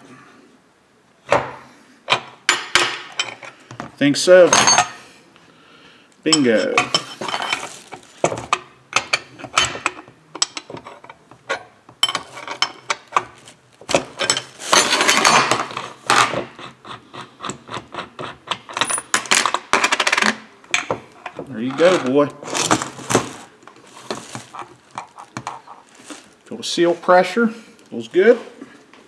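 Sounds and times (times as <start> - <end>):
metal wrenches clinking: 2.1 - 3.6, 4.4 - 5.0, 6.3 - 16.5, 17.4 - 23.4
scraping rustle: 21.5 - 28.6.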